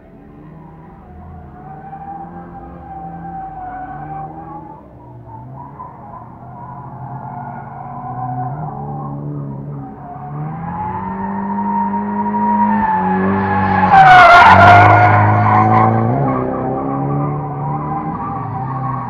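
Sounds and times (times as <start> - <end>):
car engine revving: 5.4 - 19.0.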